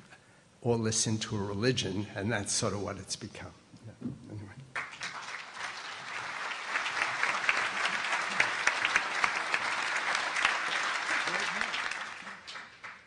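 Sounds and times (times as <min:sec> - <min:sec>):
audience applauding: 0:04.7 - 0:13.0.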